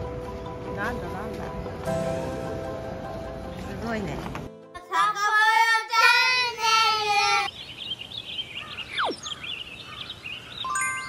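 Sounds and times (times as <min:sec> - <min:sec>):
child singing a call: 0:04.8 - 0:07.5
faint chirps: 0:07.5 - 0:11.0.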